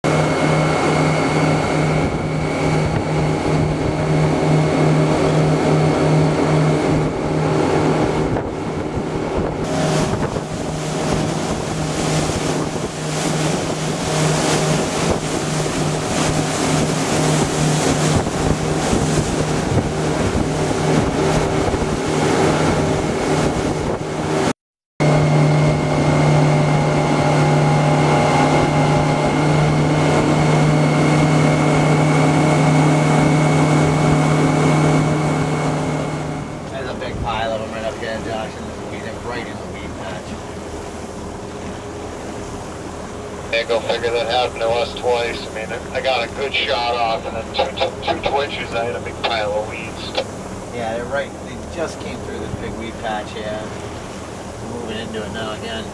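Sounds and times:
outboard motor running: 0:00.0 - 0:55.9
water rushing along hull: 0:00.0 - 0:55.9
wind buffeting microphone: 0:00.2 - 0:24.5, 0:25.5 - 0:38.0.

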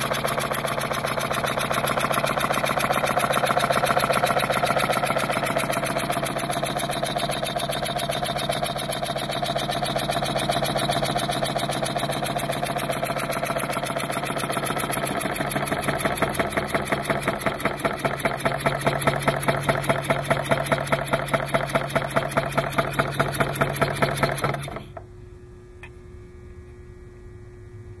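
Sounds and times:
faint steady hum: 0:24.9 - 0:28.0.

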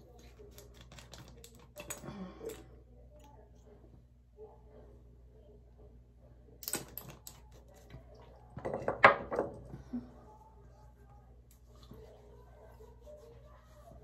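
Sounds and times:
objects knocking on counter: 0:08.6 - 0:09.6.

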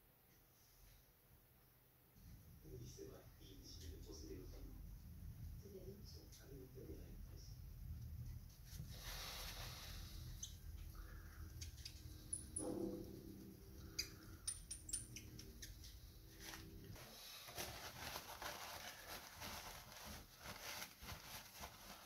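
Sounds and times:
soft rustling: 0:07.7 - 0:11.2, 0:16.0 - 0:22.0.

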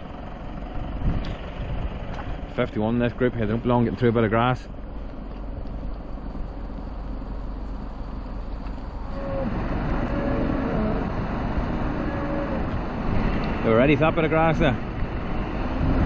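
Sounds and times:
wind on microphone: 0:00.9 - 0:02.5, 0:08.9 - 0:13.7, 0:14.7 - 0:16.0.

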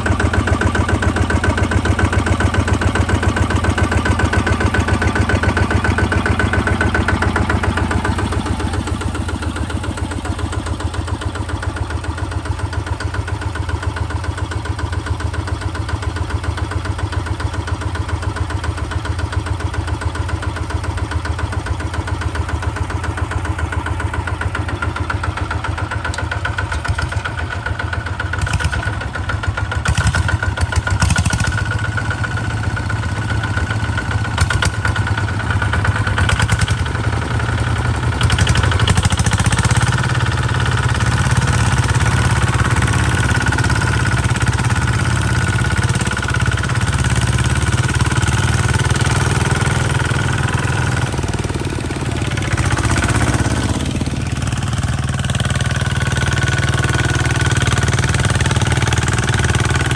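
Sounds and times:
diesel tractor engines running: 0:00.0 - 0:59.9.

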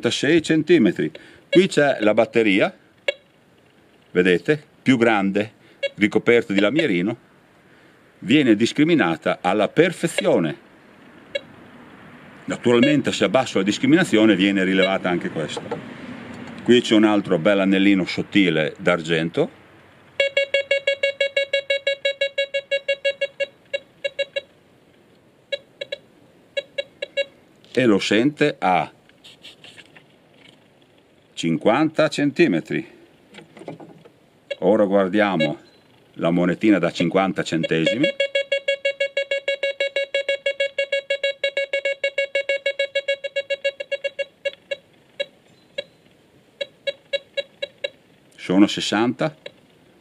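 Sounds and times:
metal detector beeps: 0:01.1 - 0:02.1, 0:03.0 - 0:03.3, 0:05.8 - 0:07.0, 0:10.0 - 0:10.5, 0:11.3 - 0:11.5, 0:12.5 - 0:15.8, 0:20.2 - 0:24.6, 0:25.5 - 0:27.4, 0:34.5 - 0:36.0, 0:36.8 - 0:46.0, 0:46.6 - 0:48.0, 0:49.3 - 0:49.6.

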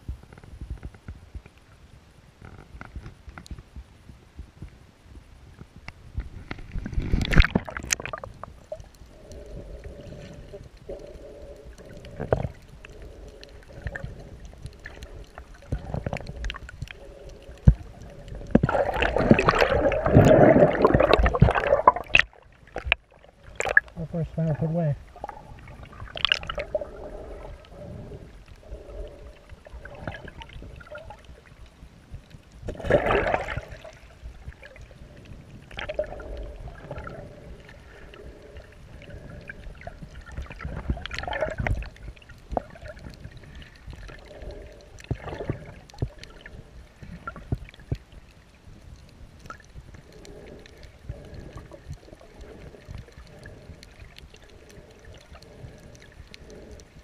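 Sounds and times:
water gurgling underwater: 0:06.4 - 0:57.0.

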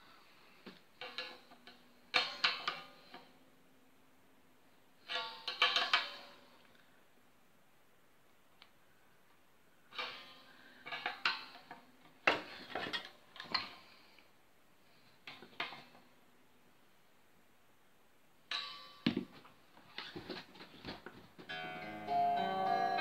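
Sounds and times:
guitar strings ringing faintly: 0:21.5 - 0:23.0.

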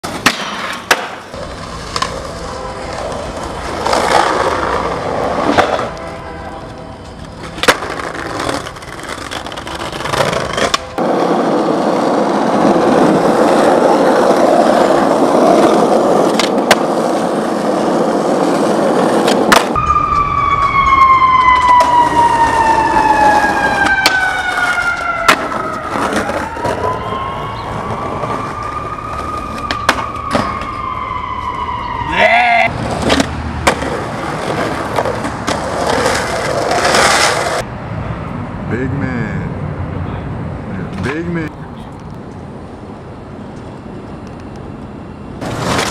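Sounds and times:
skateboard clacks: 0:00.0 - 0:06.0, 0:07.3 - 0:11.9, 0:12.6 - 0:19.8
skateboard wheels rolling on pavement: 0:00.0 - 0:38.6, 0:39.6 - 0:45.9
siren wailing: 0:19.7 - 0:32.7.

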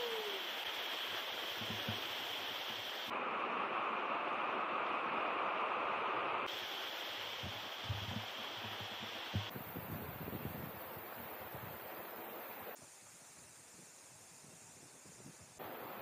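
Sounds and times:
stream rushing over cascades: 0:00.0 - 0:12.8, 0:15.6 - 0:16.0
wind buffeting microphone: 0:07.4 - 0:11.8.

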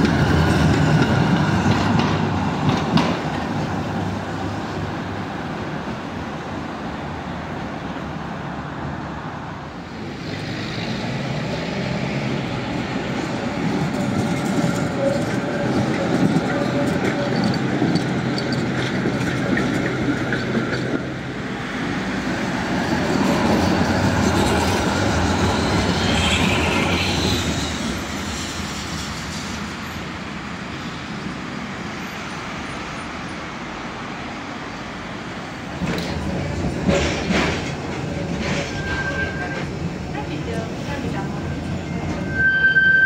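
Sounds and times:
tram wheels rumbling on rail: 0:00.0 - 0:43.0
wheel squeal: 0:38.5 - 0:39.7, 0:42.0 - 0:43.0.

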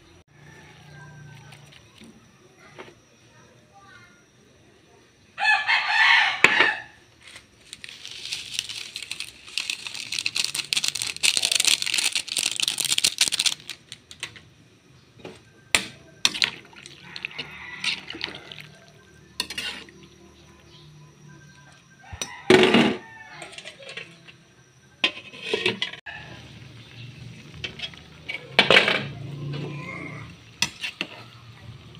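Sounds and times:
rooster crowing: 0:00.3 - 0:01.7, 0:05.4 - 0:07.0, 0:16.8 - 0:19.2, 0:21.6 - 0:23.8, 0:26.1 - 0:26.6
broth bubbling in a pan: 0:26.1 - 0:31.9.

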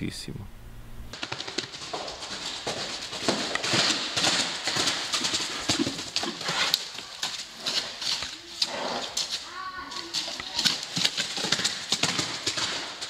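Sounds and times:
horse hoofbeats on sand: 0:01.1 - 0:13.0.

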